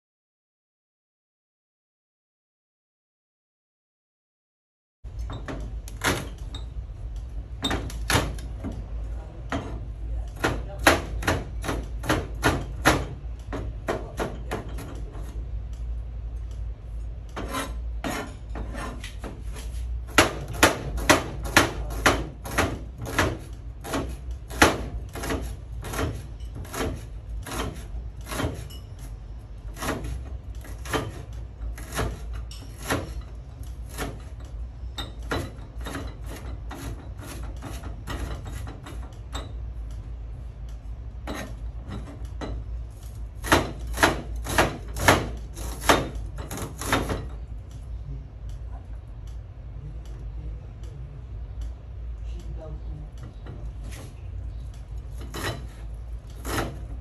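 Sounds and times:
knife chopping on plastic board: 0:20.1 - 0:28.6, 0:43.4 - 0:47.2.

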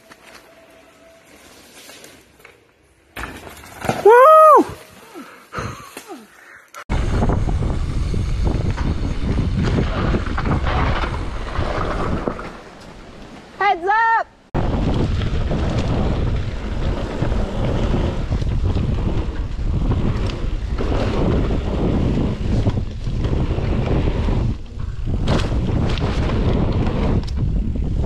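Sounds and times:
tyres on dirt trail: 0:00.0 - 0:28.0
person yelling: 0:04.0 - 0:05.2, 0:13.6 - 0:14.3
wind rushing: 0:06.9 - 0:13.2, 0:14.5 - 0:28.0.

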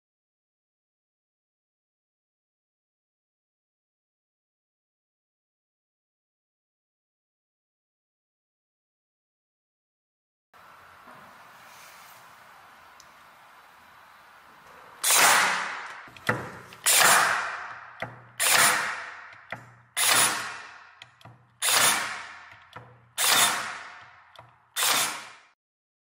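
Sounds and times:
staple gun firing into wood: 0:15.0 - 0:25.5.

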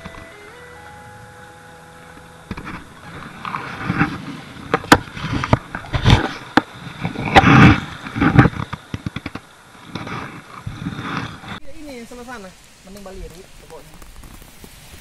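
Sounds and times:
fabric rubbing against camera: 0:02.6 - 0:08.7.

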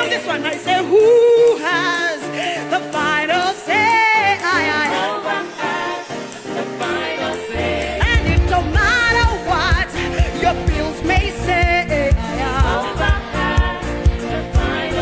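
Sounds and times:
backing singers: 0:00.0 - 0:15.0
keyboard-led band: 0:00.0 - 0:15.0
woman singing with vibrato: 0:07.8 - 0:13.9
drums and bass beat: 0:08.0 - 0:13.8.

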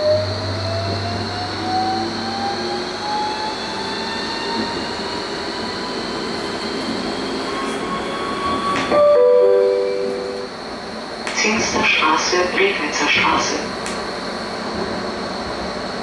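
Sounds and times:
steady high whine: 0:04.8 - 0:16.0.

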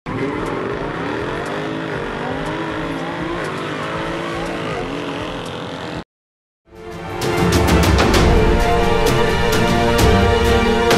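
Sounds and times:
car engine accelerating hard: 0:00.1 - 0:06.0.

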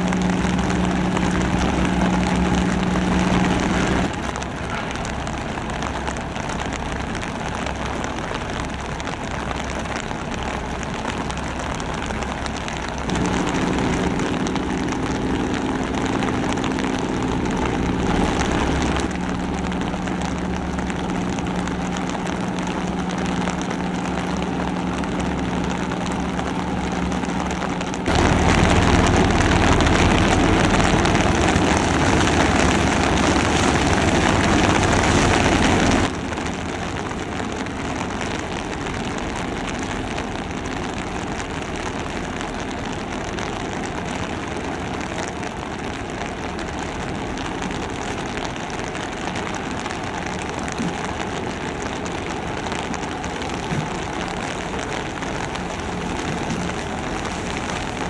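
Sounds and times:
ship engines droning: 0:00.0 - 0:07.5, 0:11.0 - 0:36.7
rushing noise: 0:00.0 - 0:07.6, 0:10.8 - 0:36.4.

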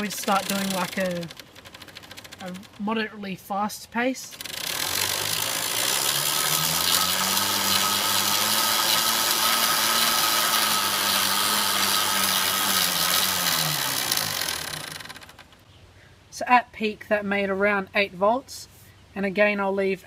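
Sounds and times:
electric motor whirring: 0:00.0 - 0:03.0, 0:04.2 - 0:15.6.

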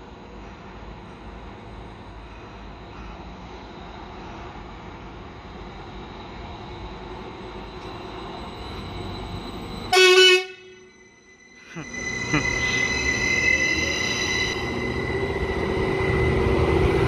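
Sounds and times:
train horn toot: 0:09.9 - 0:10.9.

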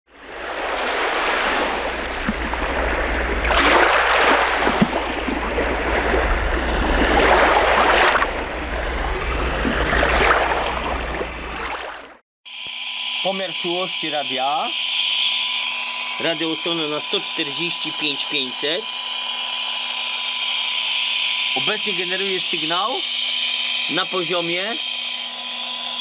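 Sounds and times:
rushing surf-like noise: 0:00.3 - 0:11.3
low steady hum: 0:01.2 - 0:11.8.

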